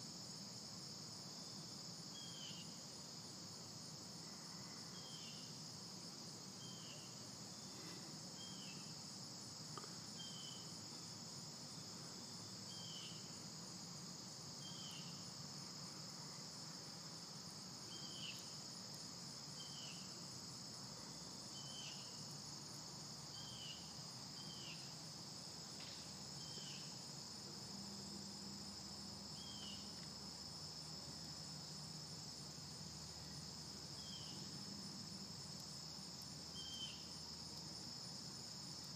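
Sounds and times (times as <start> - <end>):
crickets trilling: 0.0 - 38.9
short insect chirps: 36.4 - 37.6.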